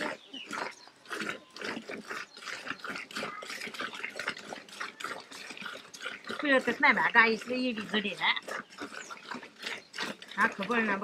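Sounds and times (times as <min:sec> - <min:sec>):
milk squirting into steel pail: 0:00.0 - 0:11.0.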